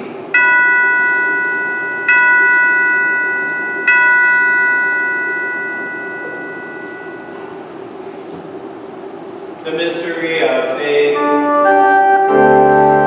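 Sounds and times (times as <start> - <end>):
altar bell ringing: 0.3 - 7.8.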